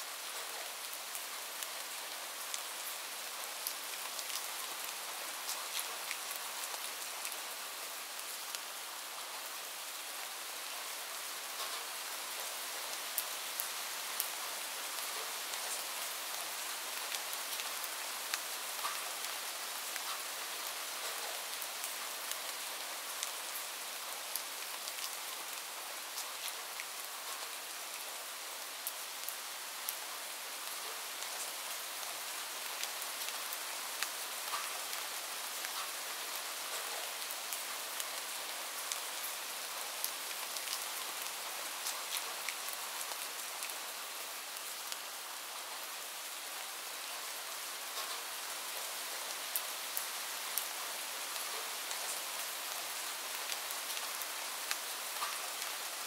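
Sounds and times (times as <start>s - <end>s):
sharp raindrop ticks: 18.3s - 19.1s, 54.7s - 55.7s.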